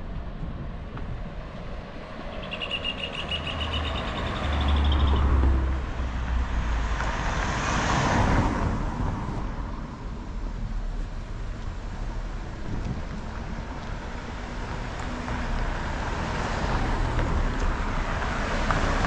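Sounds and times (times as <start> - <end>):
vehicle rushing past: 1.4 - 10.0.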